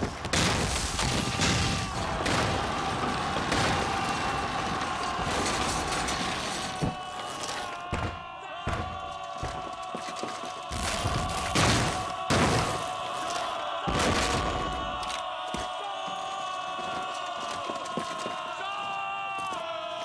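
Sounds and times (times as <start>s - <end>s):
heavy thuds and crashes: 10.7s - 13.0s.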